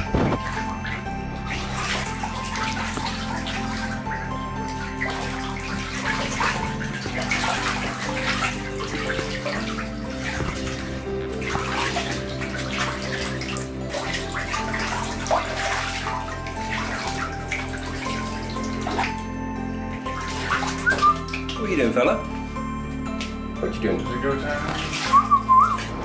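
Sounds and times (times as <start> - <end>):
background music: 0.0 - 26.0
ducks splashing in water: 4.8 - 19.2.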